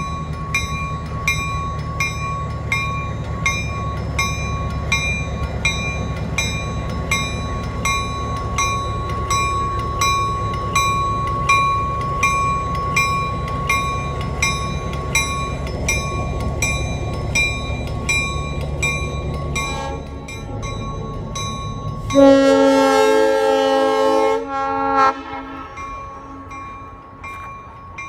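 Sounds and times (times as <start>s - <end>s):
diesel locomotive rumbling: 0.0s - 28.0s
locomotive bell ringing: 0.0s - 28.0s
locomotive air horn: 22.1s - 26.5s.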